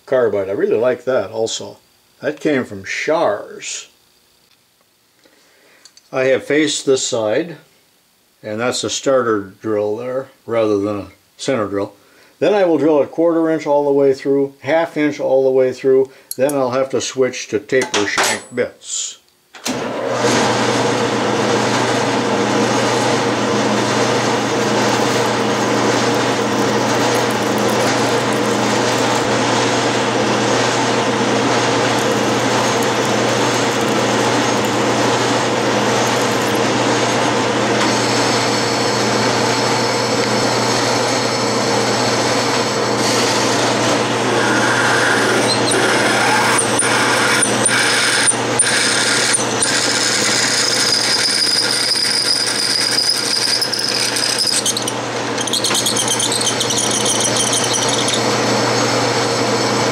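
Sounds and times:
metal lathe running: 20.2s - 59.9s
drill drilling into metal: 22.3s - 40.8s, 44.2s - 58.5s.

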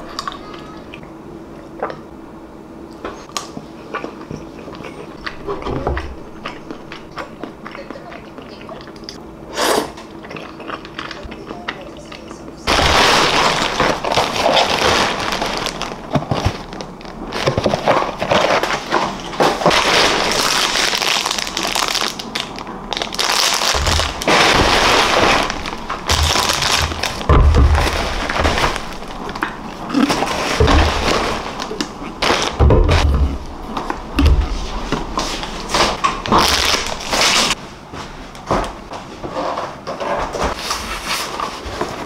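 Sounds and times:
plastic bag crinkling: 12.7s - 33.6s, 34.7s - 37.6s.

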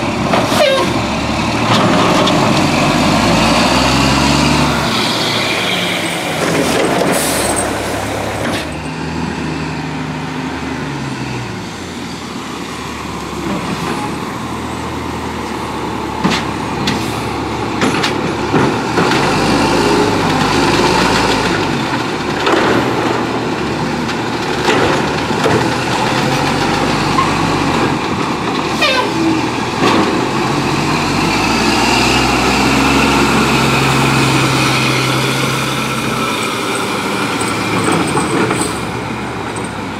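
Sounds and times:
garbage truck diesel engine: 0.0s - 39.9s
chained tires on snow: 4.7s - 9.0s, 33.7s - 39.9s.

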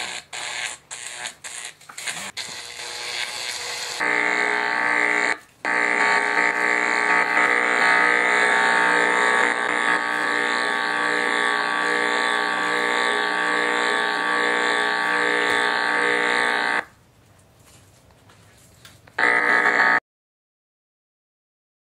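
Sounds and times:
electric zapping buzz: 0.0s - 16.9s, 19.2s - 20.0s.

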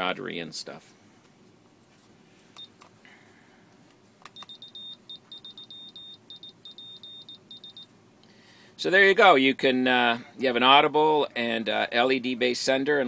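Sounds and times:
high-pitched morse code beeps: 4.3s - 7.9s.

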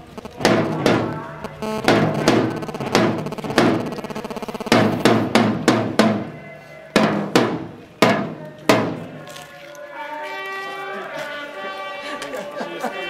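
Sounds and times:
rapid snare drum roll: 0.4s - 1.2s, 1.8s - 6.3s
marching snare drum strikes: 0.4s - 6.4s, 7.0s - 9.2s.

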